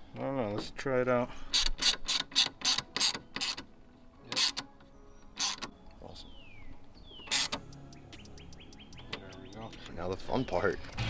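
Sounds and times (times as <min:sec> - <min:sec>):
hand ratchet clicking: 0:01.5 - 0:03.6, 0:05.4 - 0:05.7.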